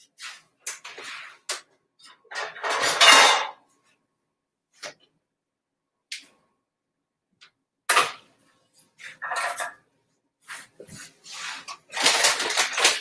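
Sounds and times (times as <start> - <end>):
scraping and clattering handling: 10.7 - 13.0.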